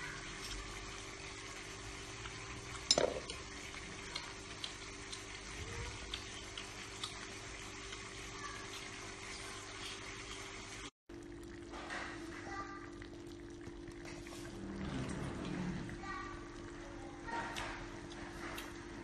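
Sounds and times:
soft chewing clicks: 3.7s - 9.0s, 17.4s - 19.0s.

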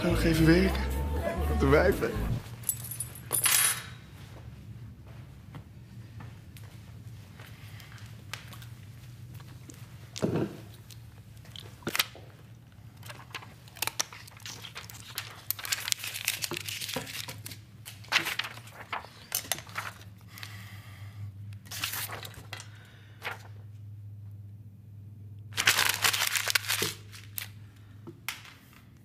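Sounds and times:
crinkling rustles: 12.9s - 20.2s.

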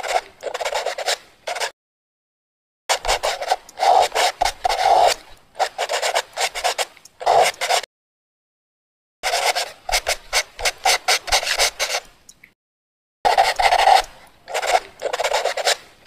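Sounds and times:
marker pen scratching: 0.0s - 1.7s, 2.9s - 7.9s, 9.2s - 12.1s, 13.3s - 15.8s.

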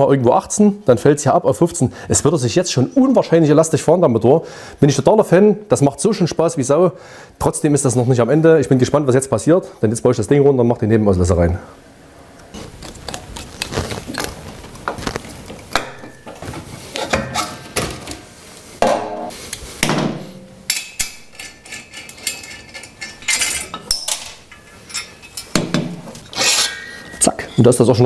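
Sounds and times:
hand tools clinking against metal: 20.6s - 25.6s.

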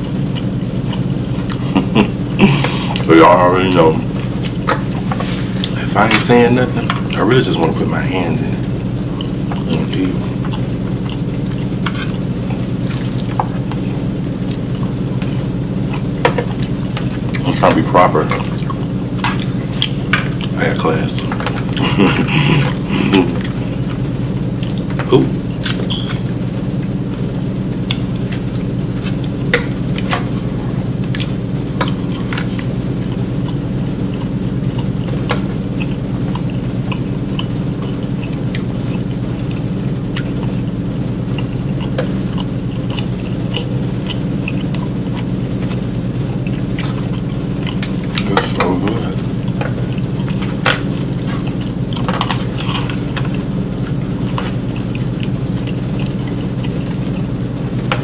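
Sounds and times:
eating sounds: 0.0s - 58.0s
steady low hum: 0.0s - 58.0s.

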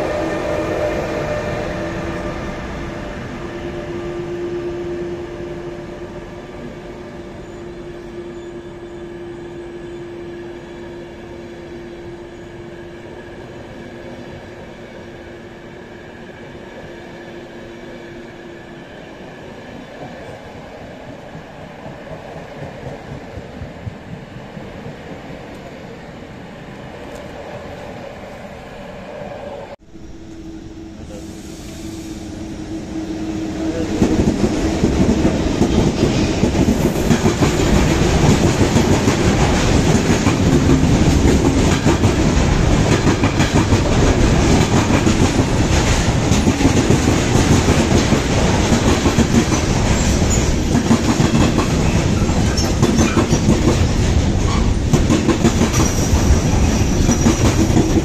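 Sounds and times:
train wheels rolling on rail: 0.0s - 58.0s.

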